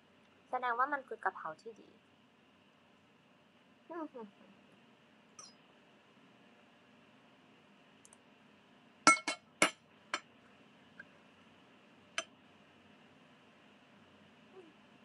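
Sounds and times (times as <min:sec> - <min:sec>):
metal spoon clinking against dish: 0:09.1 - 0:09.8.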